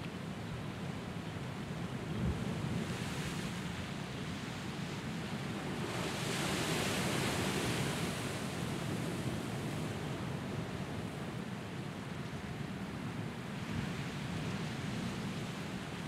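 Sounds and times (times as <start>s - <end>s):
ocean surf on rocks: 1.4s - 11.3s.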